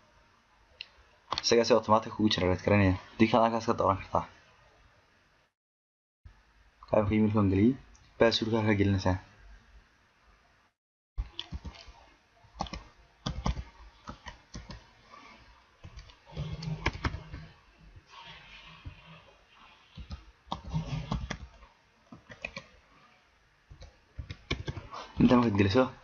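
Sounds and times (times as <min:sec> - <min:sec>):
computer keyboard typing: 0:11.3 - 0:12.0, 0:12.6 - 0:14.9, 0:15.8 - 0:17.5, 0:20.0 - 0:21.6, 0:22.2 - 0:22.7, 0:23.7 - 0:25.4.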